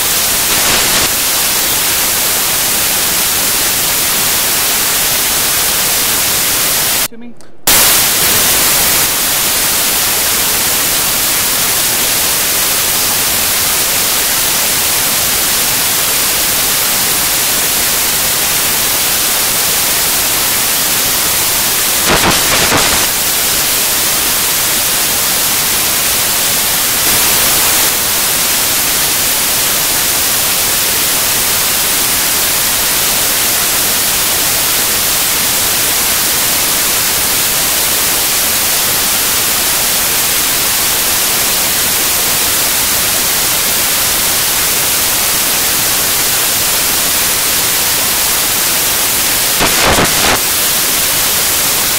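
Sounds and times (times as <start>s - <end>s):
static hiss: 0.0s - 7.1s, 7.7s - 51.9s
short crackle: 22.0s - 23.2s, 49.6s - 50.4s.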